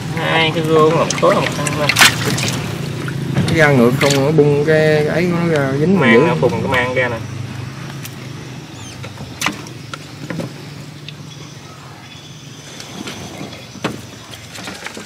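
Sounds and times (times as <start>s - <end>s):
low engine hum: 0.0s - 15.0s.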